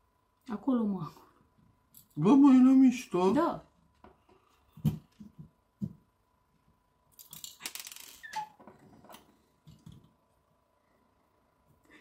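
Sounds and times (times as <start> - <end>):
plastic parts rustling and crinkling: 7.2 - 8.2.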